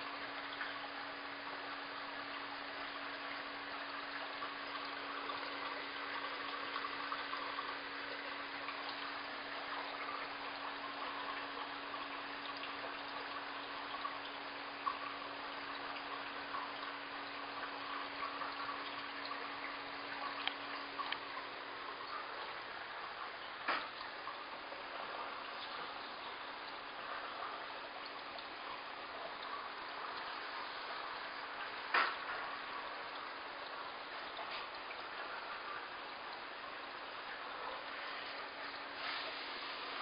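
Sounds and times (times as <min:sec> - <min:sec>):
aquarium water trickling: 0:00.0 - 0:40.0
faint clicks: 0:20.4 - 0:21.2.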